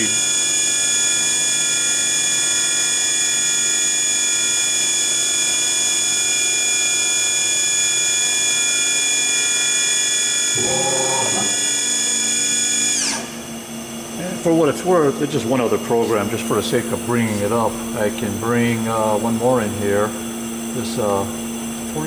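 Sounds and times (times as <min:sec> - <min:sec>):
lathe spindle whining: 0:10.4 - 0:13.2.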